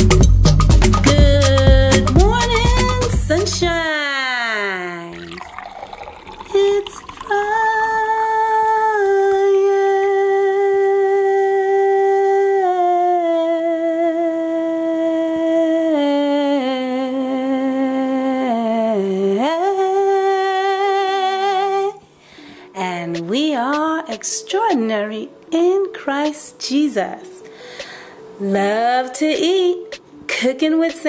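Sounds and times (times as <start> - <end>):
person humming a slow tune: 6.6 - 20.3.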